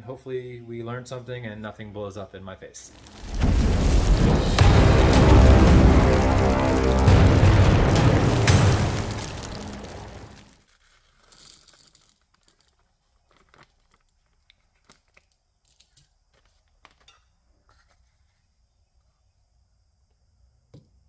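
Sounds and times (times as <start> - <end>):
plastic bag crinkling: 2.9 - 15.5
low boom: 3.0 - 10.5.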